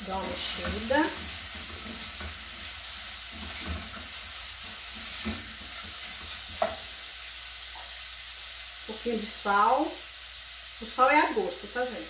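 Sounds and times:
vegetables sizzling in oil: 0:00.0 - 0:12.0
spatula scraping a pan: 0:00.1 - 0:07.0.

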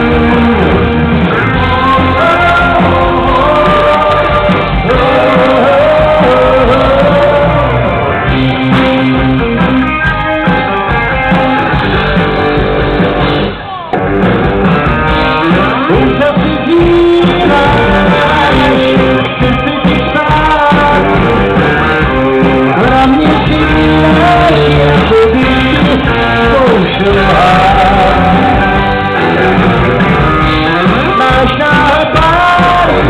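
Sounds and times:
person singing: 0:00.0 - 0:08.0, 0:15.2 - 0:29.6, 0:30.4 - 0:33.0
electric guitar: 0:00.0 - 0:33.0.

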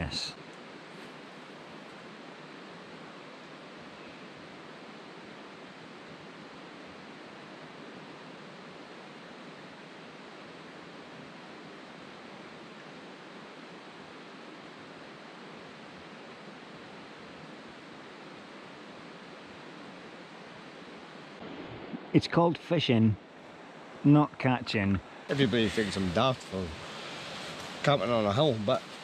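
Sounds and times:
running water: 0:24.0 - 0:29.0.

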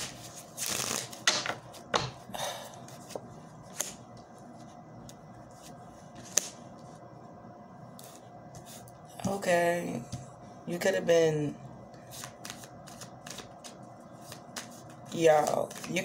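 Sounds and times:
cards clicking and slapping: 0:12.2 - 0:16.0.

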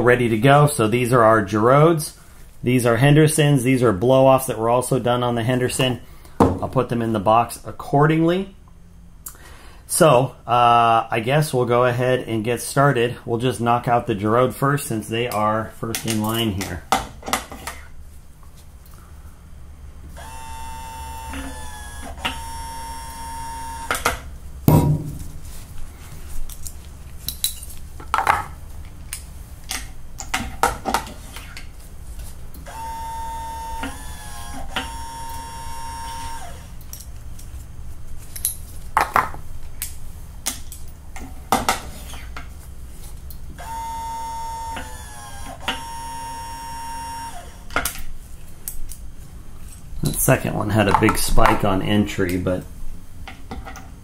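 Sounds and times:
press motor whine: 0:20.1 - 0:24.3, 0:32.6 - 0:36.8, 0:43.6 - 0:47.8.

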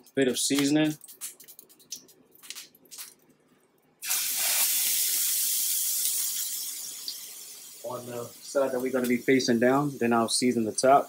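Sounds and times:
meat patty sizzling on a griddle: 0:04.0 - 0:10.8.

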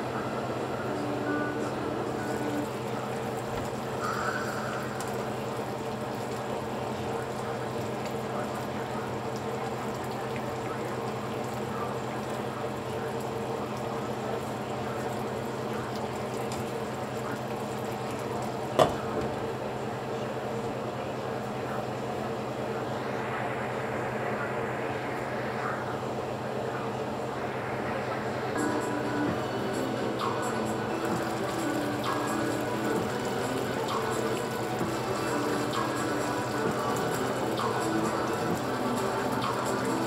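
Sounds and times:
broth simmering in a skillet: 0:00.0 - 0:25.8, 0:27.3 - 0:40.0
low hum: 0:21.6 - 0:39.5.

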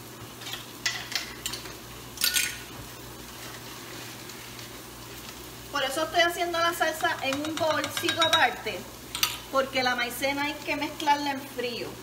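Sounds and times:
utensils clinking: 0:00.5 - 0:02.7.

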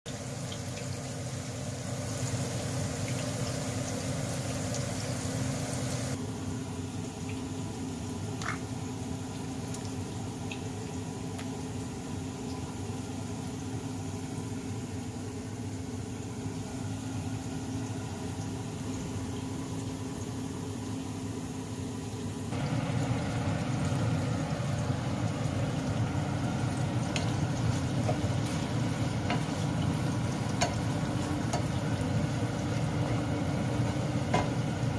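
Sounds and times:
beef frying: 0:00.1 - 0:06.2, 0:22.4 - 0:34.9
onions sizzling in a frying pan: 0:00.1 - 0:06.2, 0:22.5 - 0:34.9
steady low hum: 0:01.6 - 0:34.9.

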